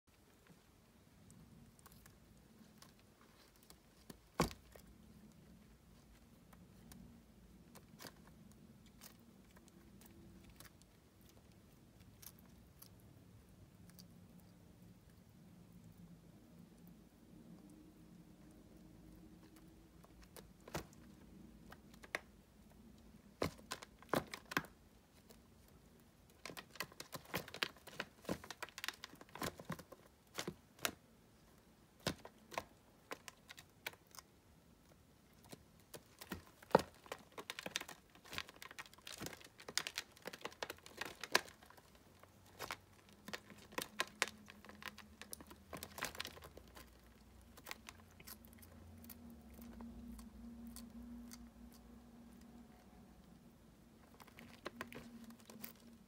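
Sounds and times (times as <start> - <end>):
faint low hum: 0.1 - 56.0
claws clicking on plastic: 18.4 - 52.8, 54.0 - 56.0.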